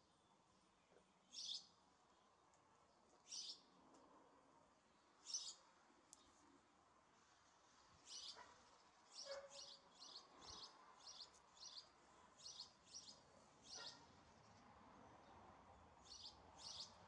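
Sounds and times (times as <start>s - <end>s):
bird chirping: 0.0s - 2.3s, 3.1s - 3.8s, 5.2s - 6.4s, 8.0s - 15.4s, 16.0s - 17.0s.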